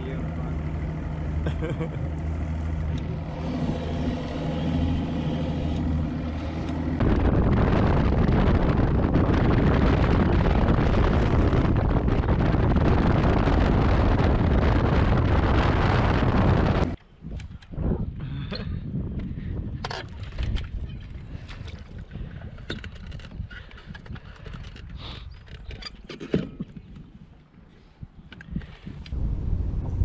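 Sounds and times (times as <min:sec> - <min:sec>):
outboard motor running: 0:00.0 - 0:17.0
rush of engine wind and water: 0:00.0 - 0:17.0.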